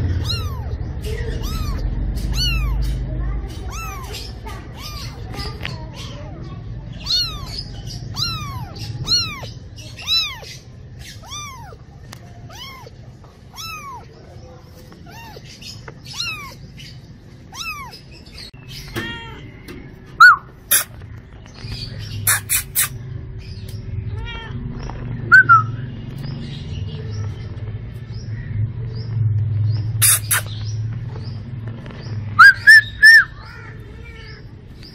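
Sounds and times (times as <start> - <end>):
cat meowing: 0.1 - 2.9, 3.6 - 5.3, 7.0 - 11.9, 12.5 - 14.2, 15.0 - 16.6, 17.5 - 18.1, 18.8 - 19.6, 24.2 - 24.7, 33.4 - 34.5.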